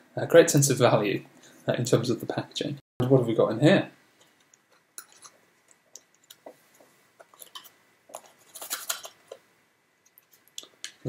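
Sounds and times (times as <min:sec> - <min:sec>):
rustling scrape: 0:06.4 - 0:09.4
box clicks and scrapes: 0:07.2 - 0:09.4.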